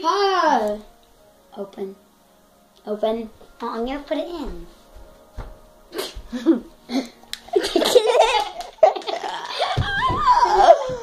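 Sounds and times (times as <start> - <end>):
person laughing: 6.0 - 11.0.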